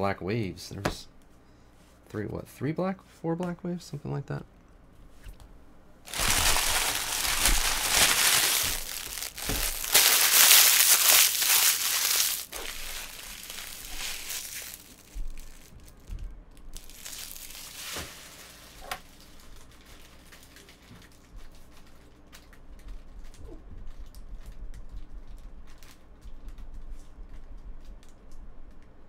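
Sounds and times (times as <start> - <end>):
plastic wrapper crinkling and tearing: 6.1 - 28.2.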